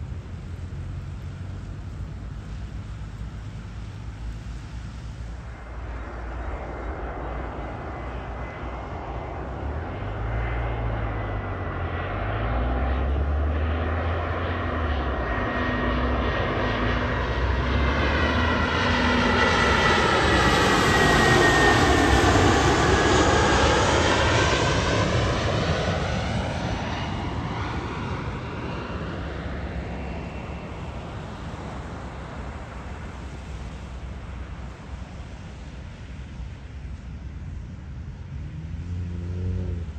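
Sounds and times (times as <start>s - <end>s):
airliner flying past: 0.0s - 39.9s
high engine whine dropping in pitch: 38.0s - 39.9s.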